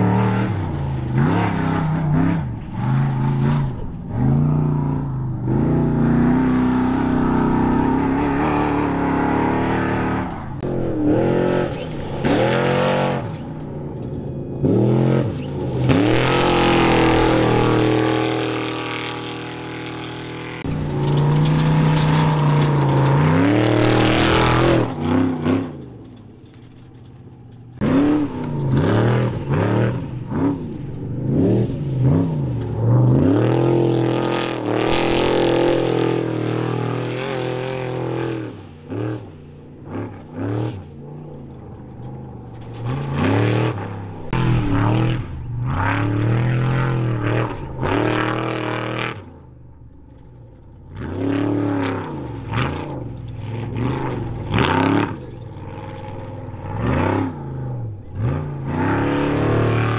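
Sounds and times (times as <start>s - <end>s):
rush of trucks passing close: 0.0s - 39.6s
race truck engines revving: 0.0s - 59.9s.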